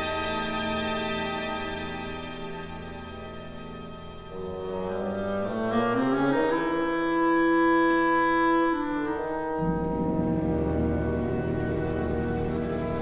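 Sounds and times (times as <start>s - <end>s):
clarinet and bassoon playing: 4.3s - 13.0s
low strings: 9.6s - 13.0s.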